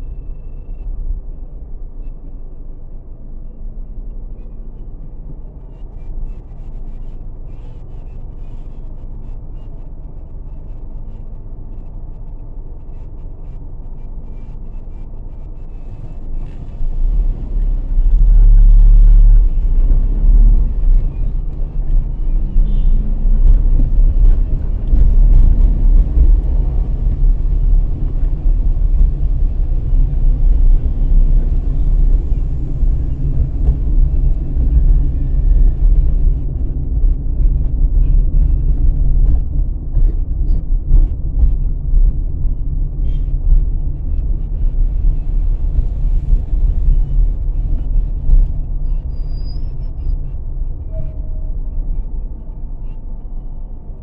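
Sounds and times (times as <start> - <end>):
car engine rumble: 0.0 - 54.0
road and wind noise: 0.0 - 54.0.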